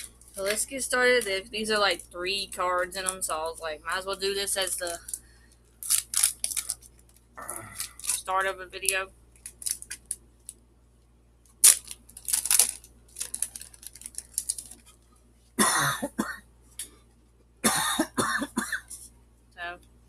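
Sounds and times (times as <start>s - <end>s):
foil wrapper crinkling: 4.7s - 8.4s, 9.4s - 10.6s, 11.5s - 15.1s
sharp tear of foil: 5.8s - 6.9s, 9.4s - 10.2s, 11.6s - 14.8s.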